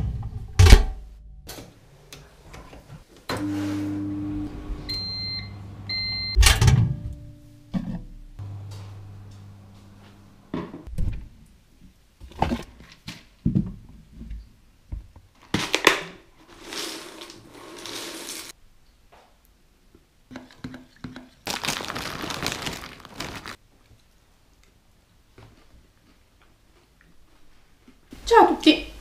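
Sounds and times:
cereal poured from plastic bag: 16.5s - 18.5s, 21.4s - 23.6s.

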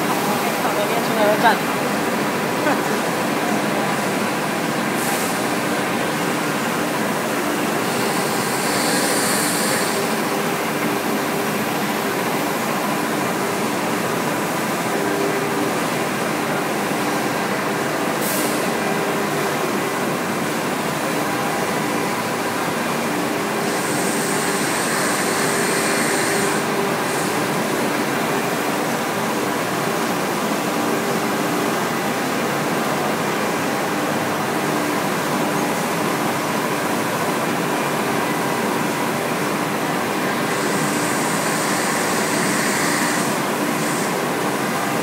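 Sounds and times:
high-pitched machine whine: 0.0s - 15.9s, 21.1s - 28.8s, 34.2s - 45.0s
busy hall noise: 0.0s - 45.0s
cnc router motors humming: 7.6s - 12.5s, 23.1s - 28.2s, 40.2s - 45.0s.

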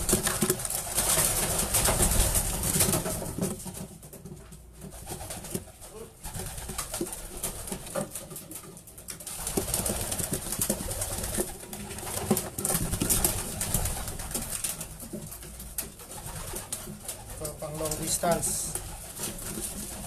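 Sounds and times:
rustling: 0.0s - 20.0s
pigeons cooing: 4.7s - 20.0s
wing flaps: 4.8s - 20.0s.

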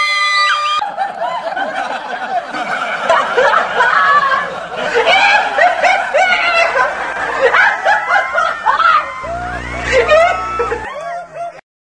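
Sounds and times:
person laughing: 3.1s - 11.6s
low buzzing hum: 9.1s - 11.0s.

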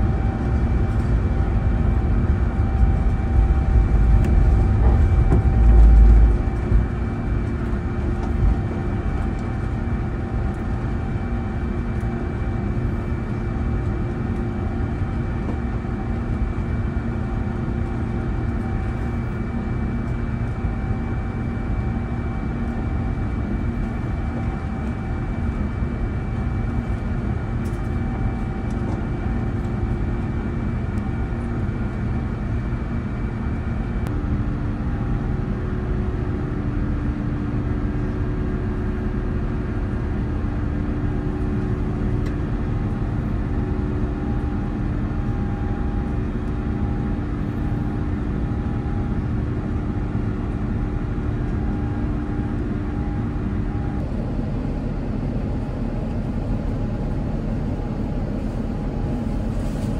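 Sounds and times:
high whine: 0.0s - 13.2s
jet engines droning: 0.0s - 59.9s
rush of airflow: 58.2s - 59.9s.

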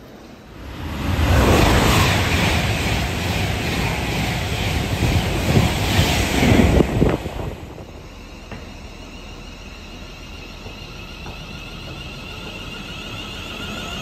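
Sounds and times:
electric train humming and whining: 0.0s - 14.0s
express train rushing past: 0.0s - 14.0s.

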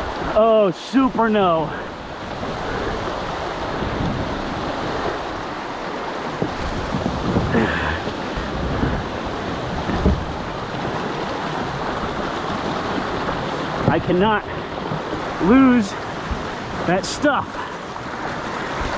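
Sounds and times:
river water rushing over rapids: 0.0s - 18.9s
wind buffeting microphone: 1.8s - 16.9s
dull knocks and splashes: 2.3s - 18.9s.

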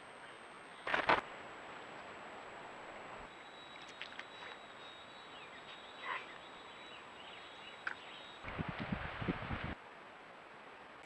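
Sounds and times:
bird wings fluttering: 0.8s - 1.2s
faint short bird calls: 3.3s - 8.3s.

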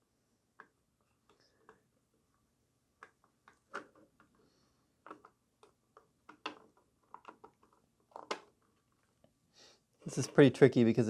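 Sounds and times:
plastic clicks and taps: 5.0s - 8.6s.

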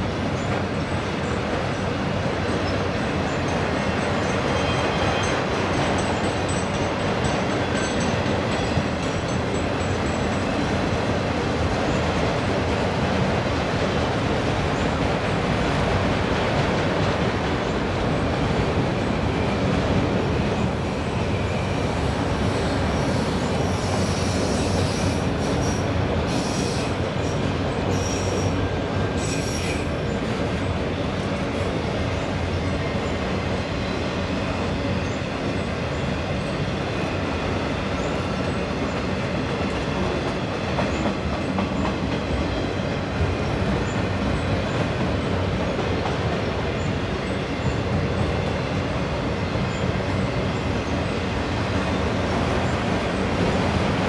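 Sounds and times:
steel wheels on rails: 0.1s - 54.0s
high-pitched wheel squeals: 27.9s - 28.6s.

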